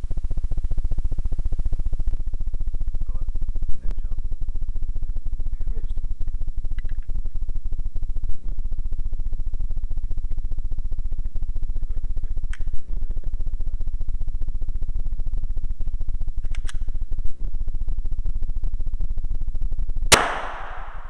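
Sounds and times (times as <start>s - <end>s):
low rumbling hum: 0.0s - 21.0s
muffled gunshots: 20.1s - 21.0s.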